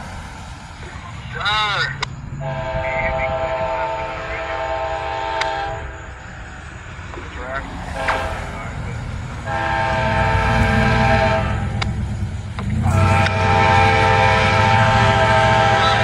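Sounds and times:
train rumbling: 0.0s - 16.0s
locomotive air horn blasts: 2.4s - 6.1s, 7.8s - 8.8s, 9.4s - 11.9s, 12.7s - 16.0s.

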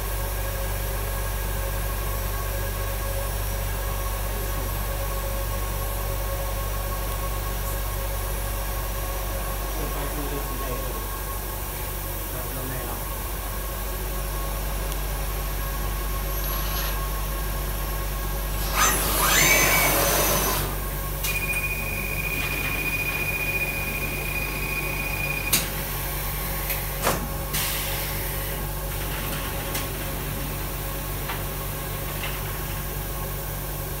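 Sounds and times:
low machine hum: 0.0s - 34.0s
high-pitched tone: 21.2s - 25.6s.

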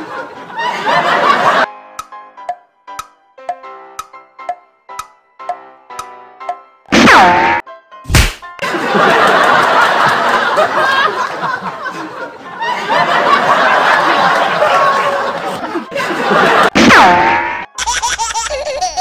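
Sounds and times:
canned laughter: 0.0s - 1.7s, 8.6s - 19.0s
cartoon swoop sound effect: 6.9s - 8.4s, 16.8s - 17.6s.

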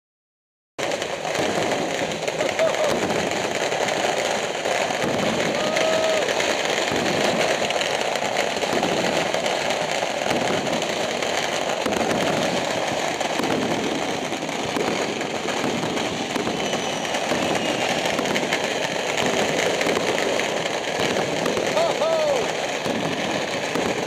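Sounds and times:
firecrackers crackling: 0.8s - 24.0s.

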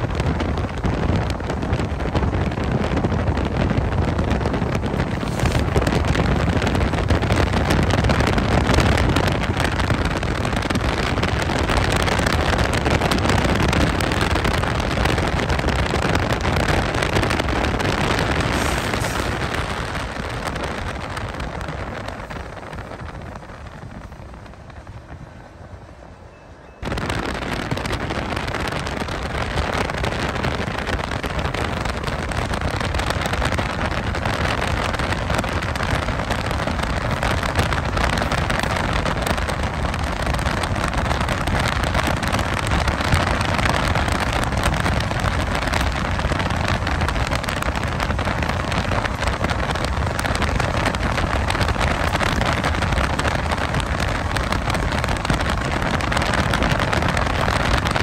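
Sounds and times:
road noise: 0.0s - 58.0s
wind rush: 0.0s - 58.0s
freight locomotive diesel engines: 16.8s - 27.4s.

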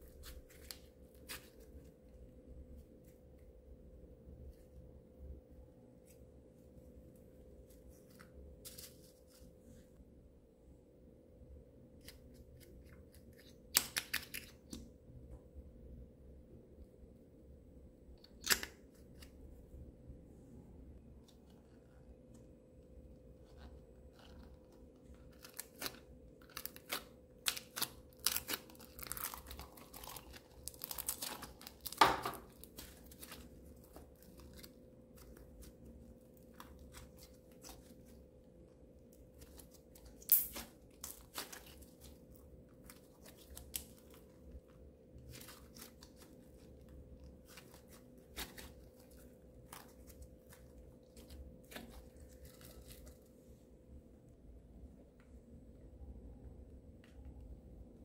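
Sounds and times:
slime sticky crackling: 23.5s - 44.6s, 45.2s - 53.3s.

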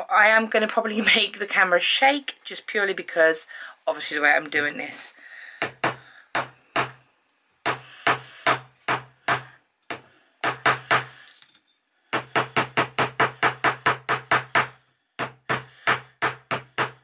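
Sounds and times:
hammer tapping on steel block: 5.6s - 7.0s, 7.6s - 11.1s, 12.1s - 17.0s.

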